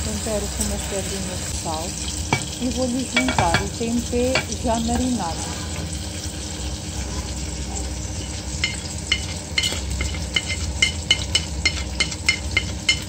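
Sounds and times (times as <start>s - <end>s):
food sizzling in a pot: 0.0s - 13.0s
spoon scraping a plate: 8.1s - 13.0s
spoon clinking against plate: 8.2s - 13.0s.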